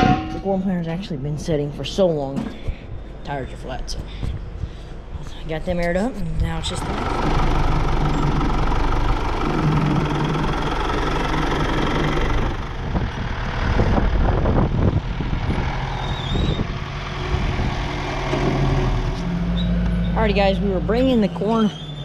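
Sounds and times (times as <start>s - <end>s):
tractor diesel engine running: 0.0s - 22.0s
planter knocking and clattering: 6.8s - 13.3s.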